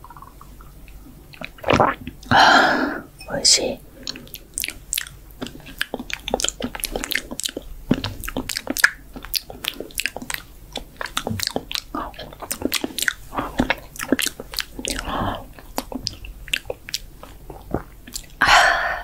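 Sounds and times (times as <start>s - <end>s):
wet mouth clicks and smacks: 4.0s - 18.4s.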